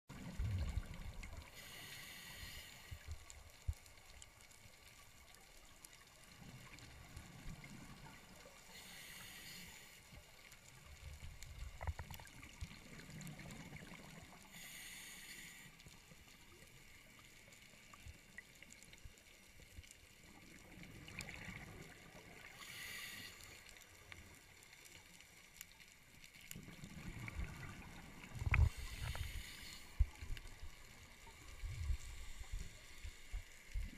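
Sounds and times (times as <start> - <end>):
rumbling exhaled bubbles: 0.1 - 1.5, 26.6 - 29.3
regulator hiss on inhalation: 1.5 - 3.1, 8.7 - 10.0, 14.5 - 15.8, 22.6 - 23.7, 28.6 - 30.3, 32.0 - 33.6.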